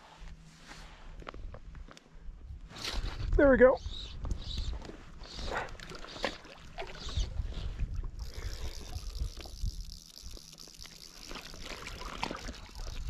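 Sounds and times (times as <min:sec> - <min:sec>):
water trickling and lapping: 0:04.6 - 0:13.0.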